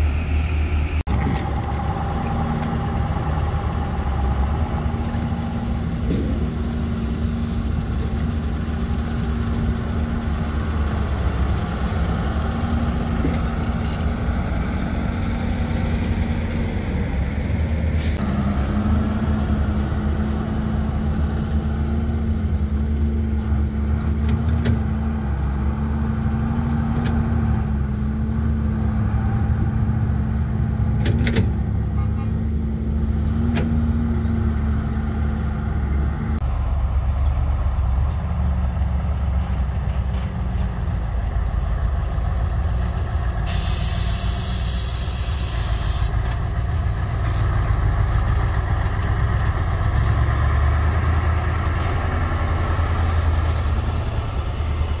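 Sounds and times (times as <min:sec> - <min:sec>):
diesel truck engine under load: 0:00.0 - 0:55.0
hiss of air: 0:17.9 - 0:18.2, 0:43.4 - 0:46.2.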